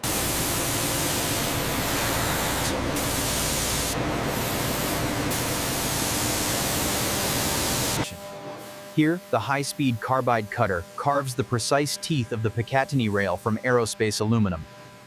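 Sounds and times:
coolant spray hissing: 0.0s - 8.0s.

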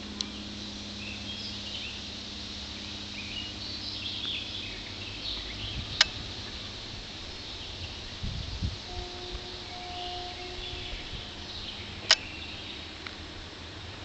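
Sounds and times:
low hum: 0.0s - 14.0s
small birds chirping: 0.0s - 14.0s
steady hiss: 0.0s - 14.0s
sharp click: 12.0s - 12.3s.

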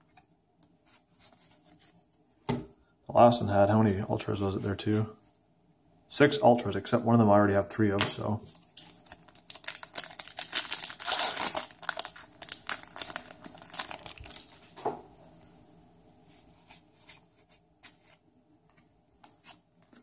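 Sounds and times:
foil wrapper crinkling and tearing: 8.5s - 14.8s.

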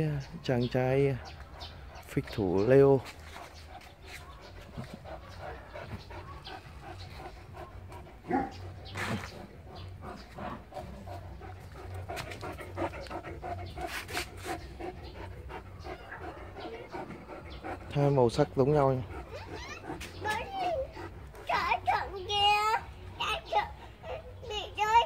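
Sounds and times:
dog panting: 0.2s - 25.0s.

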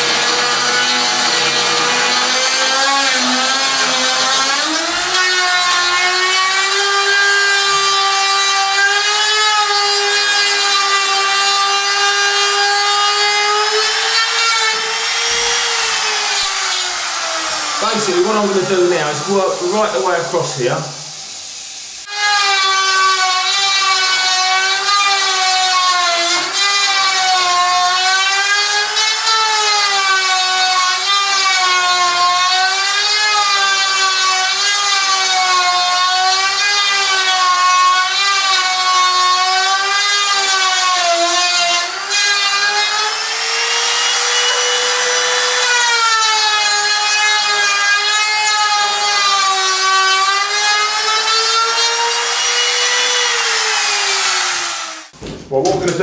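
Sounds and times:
router motor whine: 0.0s - 20.4s, 42.0s - 55.2s.

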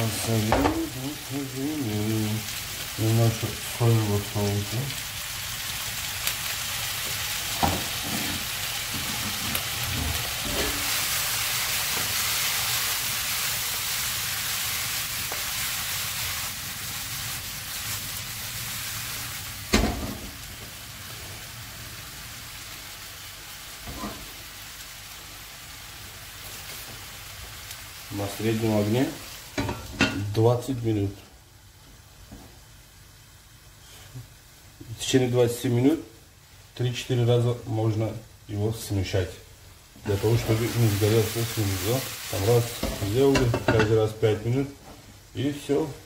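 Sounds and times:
food sizzling in a frying pan: 0.0s - 46.0s.

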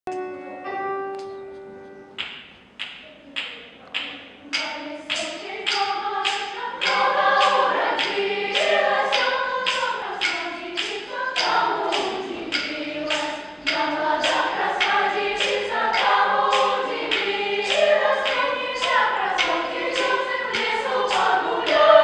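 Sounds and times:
children's choir singing: 0.1s - 22.0s
sharp steady percussive beat: 2.2s - 22.0s.

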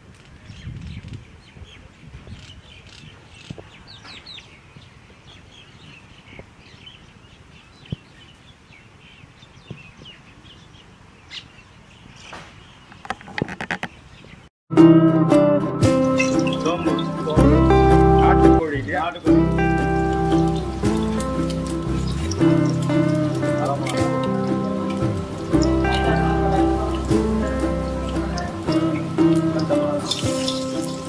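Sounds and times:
small birds chirping: 0.2s - 14.5s, 15.9s - 31.0s
rustling: 19.3s - 31.0s.

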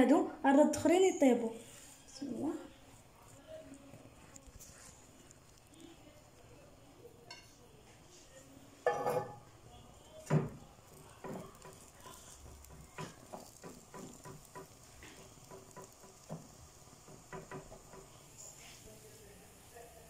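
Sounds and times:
dough thumping on griddle: 10.2s - 18.2s
hand patting dough: 10.2s - 18.2s.

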